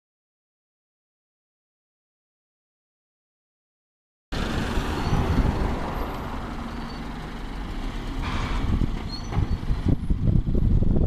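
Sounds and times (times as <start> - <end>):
bus engine rumble: 4.3 - 11.0.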